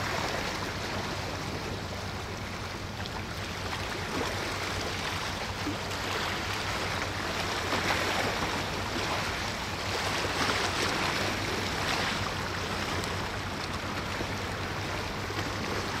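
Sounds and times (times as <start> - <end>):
sea water washing: 0.0 - 16.0
steady low hum: 0.0 - 16.0.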